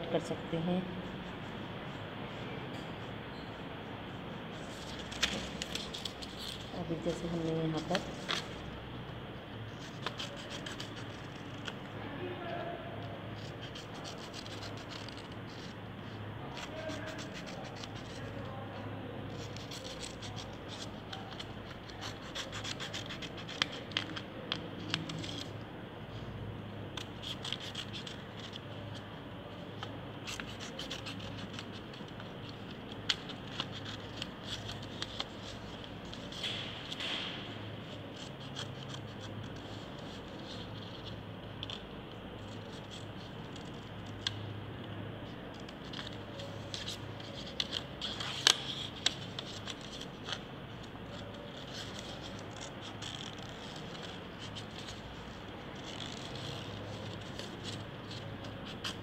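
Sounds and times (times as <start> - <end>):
scissors snipping paper: 9.8 - 11.9, 13.4 - 15.7, 16.5 - 18.4, 19.3 - 25.5, 27.0 - 28.9, 29.8 - 37.3, 37.9 - 41.8, 45.6 - 50.4.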